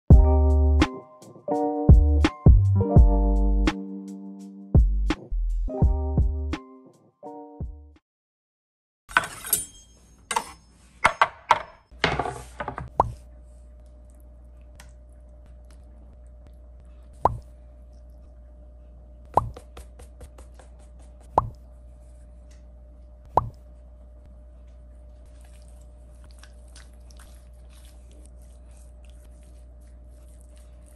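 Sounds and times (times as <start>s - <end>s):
steady low hum: 12.9s - 30.9s.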